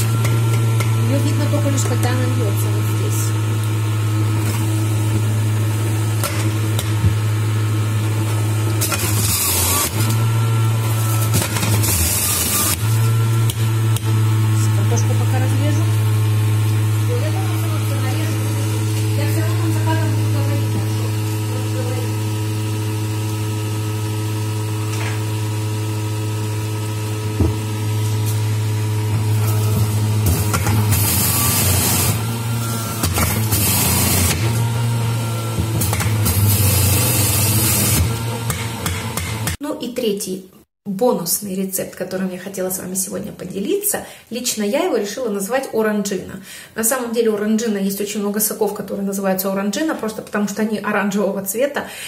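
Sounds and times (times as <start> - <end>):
juicer motor humming: 0.0 - 39.6
knock: 27.4 - 27.6.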